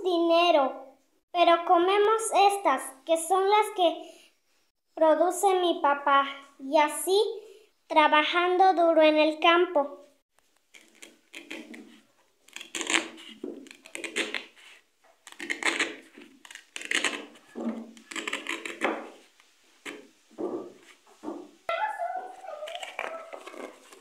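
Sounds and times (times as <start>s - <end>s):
knife cutting corn husks: 10.7s - 20.1s, 22.6s - 24.0s.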